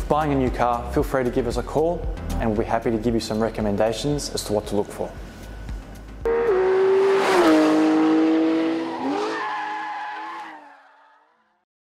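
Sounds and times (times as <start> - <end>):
car engine: 6.2 - 10.8
tyre screech: 8.5 - 11.3.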